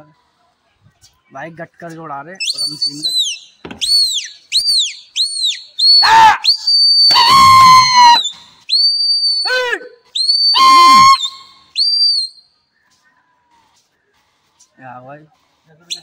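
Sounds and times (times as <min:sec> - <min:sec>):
person whistling loudly: 0:02.4 - 0:12.4.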